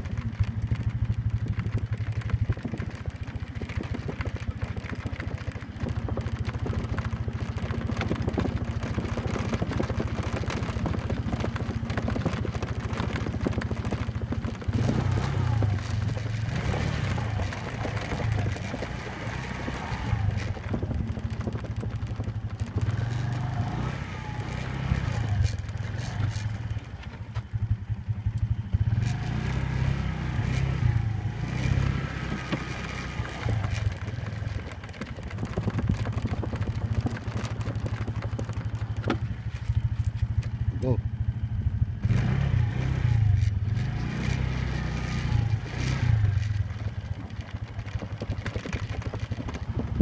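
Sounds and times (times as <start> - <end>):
footsteps on leafy dirt trail: 2.3 - 27.5, 31.5 - 40.7
wind buffeting microphone: 48.0 - 50.0.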